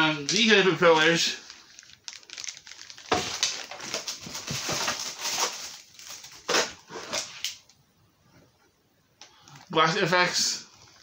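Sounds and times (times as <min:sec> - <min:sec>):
plastic bags crinkling: 0:00.0 - 0:07.7.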